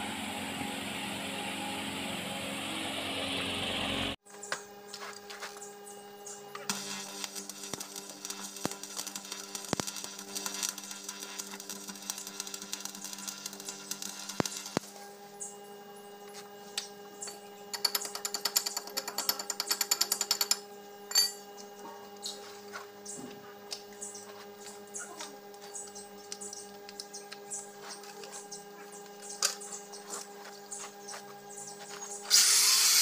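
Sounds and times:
electrical hum: 0.0 - 33.0
welding arc crackling: 6.5 - 14.9.

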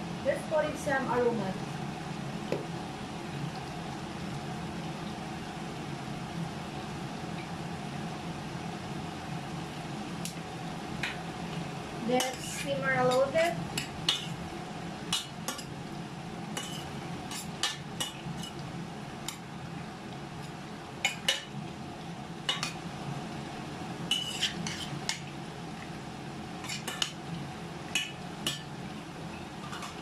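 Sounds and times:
metal spoon scraping a steel pot: 12.2 - 13.3, 24.1 - 25.0.

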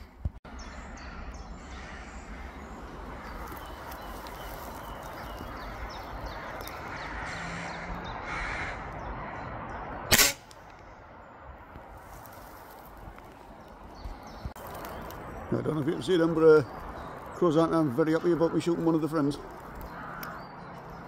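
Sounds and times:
crows cawing: 0.6 - 9.6, 18.2 - 21.0
air rifle shot: 10.1 - 10.6.

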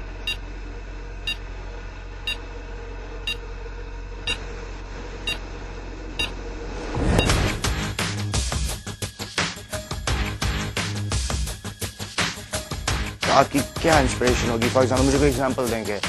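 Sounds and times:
steady low hum: 0.0 - 9.2
rising whoosh: 5.9 - 8.4.

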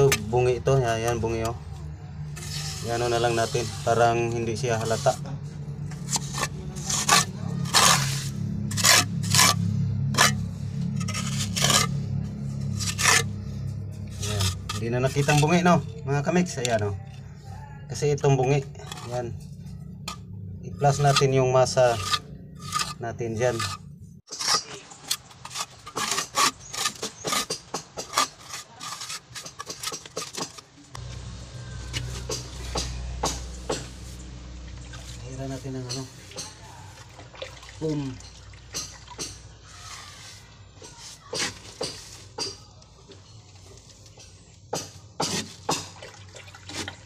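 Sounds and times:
trowel scraping wet mortar: 2.3 - 15.8, 18.4 - 19.5, 20.1 - 30.7, 34.9 - 37.2, 38.7 - 42.6, 44.8 - 46.0
low hum: 4.4 - 17.8, 30.9 - 35.4.

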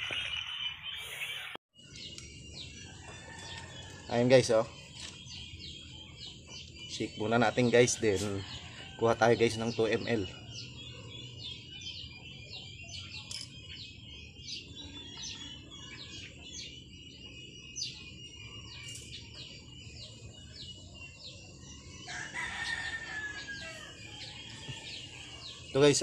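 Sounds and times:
small birds chirping: 0.0 - 26.0
rooster crowing: 2.8 - 4.4, 7.7 - 10.9, 22.0 - 25.8.

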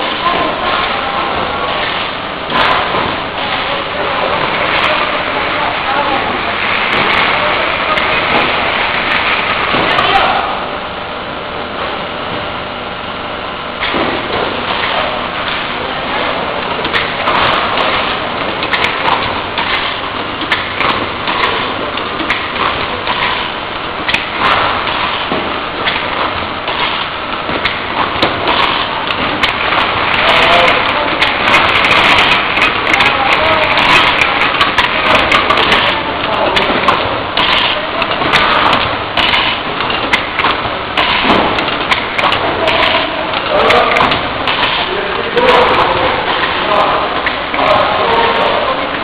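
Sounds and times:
bottling machinery din: 0.0 - 49.0
plastic bottles clattering: 16.2 - 48.8.

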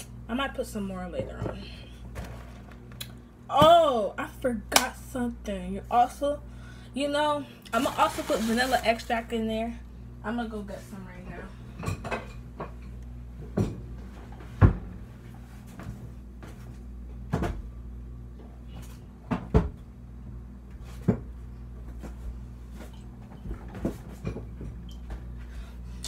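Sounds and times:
steady low hum: 0.0 - 26.0
cupboard doors and contents banging: 13.5 - 15.0.

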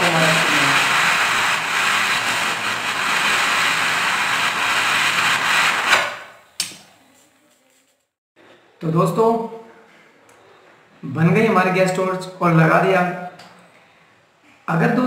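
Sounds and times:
gas torch hissing: 0.0 - 6.3.

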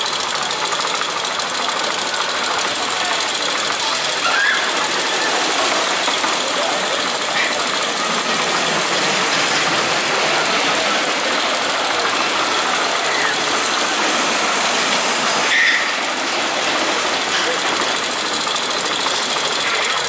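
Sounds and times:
coaster car wheels rattling on rails: 0.0 - 20.0
short high-pitched sound: 14.8 - 16.1.

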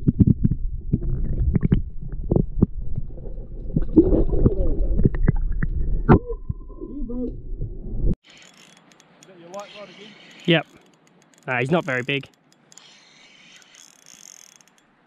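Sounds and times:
underwater knocks and clicks: 0.0 - 5.8
muffled underwater rumble: 0.0 - 8.1.

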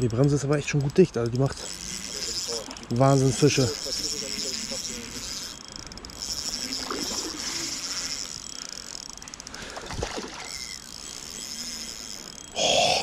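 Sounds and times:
fishing reel whirring and clicking: 0.0 - 13.0
fish splashing at the surface: 9.6 - 10.5.

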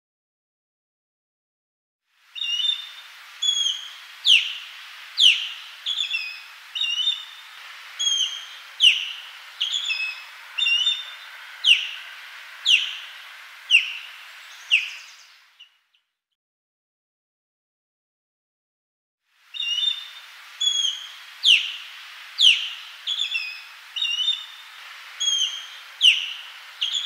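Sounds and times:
osprey whistled calls: 2.4 - 15.8, 19.5 - 27.0.

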